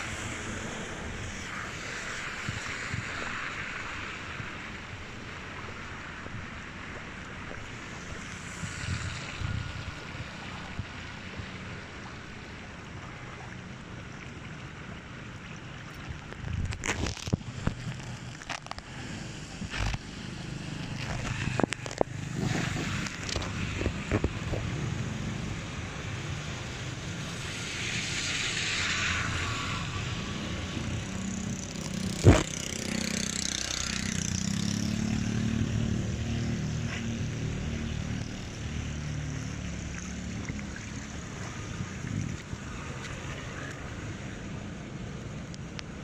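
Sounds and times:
tyres on wet road: 0.0s - 46.0s
motorbikes passing: 7.8s - 10.4s, 19.0s - 45.0s.

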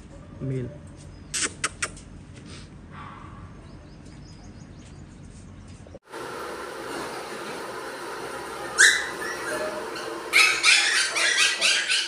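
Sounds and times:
puppies yipping: 8.6s - 12.0s.

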